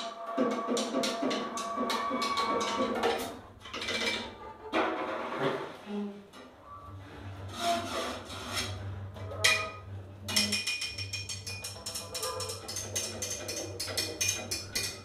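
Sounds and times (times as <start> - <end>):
clicks and taps on drum kit: 0.0 - 5.0, 10.3 - 15.0
bowed double bass: 0.8 - 10.4.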